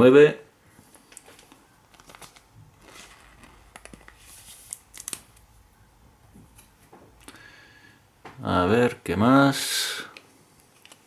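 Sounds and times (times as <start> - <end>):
plastic sleeve scraping and crinkling: 1.3 - 5.2.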